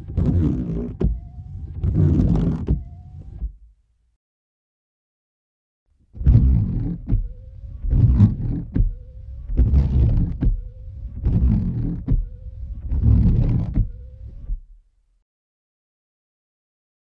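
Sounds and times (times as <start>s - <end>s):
windshield wipers swishing: 0.0s - 3.7s, 6.2s - 14.7s
faint whine: 0.0s - 4.2s, 6.1s - 15.2s
wiper knock: 6.2s - 10.6s.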